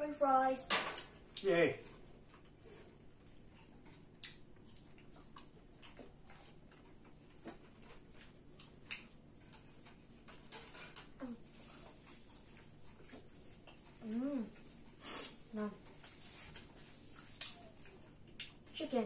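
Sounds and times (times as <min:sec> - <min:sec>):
chewing mouth smacks: 0:03.5 - 0:09.6, 0:16.0 - 0:18.6.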